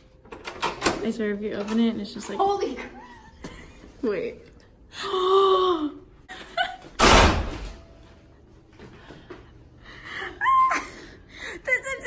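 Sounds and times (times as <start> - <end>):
heavy door closing with thud: 7.0 - 7.7.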